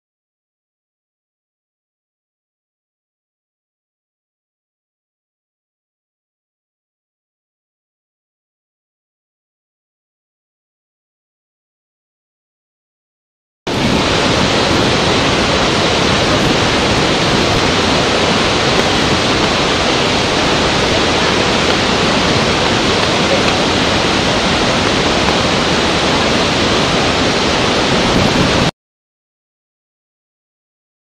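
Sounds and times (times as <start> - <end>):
waterfall rushing: 13.7 - 28.7.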